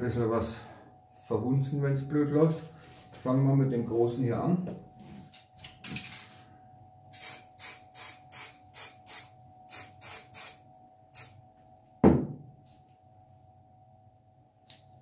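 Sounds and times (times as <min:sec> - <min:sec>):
spray can hissing bursts: 0:07.1 - 0:11.4
can knocking on table: 0:12.0 - 0:12.4.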